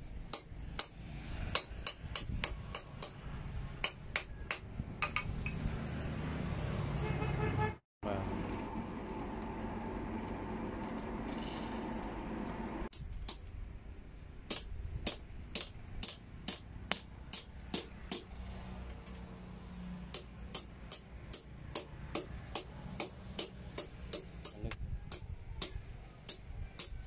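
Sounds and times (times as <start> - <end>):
hammer striking steel on anvil: 1.5 - 3.2, 20.1 - 27.0.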